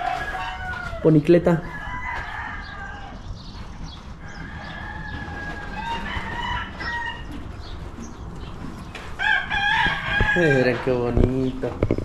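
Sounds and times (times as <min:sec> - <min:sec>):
rooster crowing: 0:00.0 - 0:03.2, 0:04.2 - 0:07.3, 0:09.2 - 0:10.8.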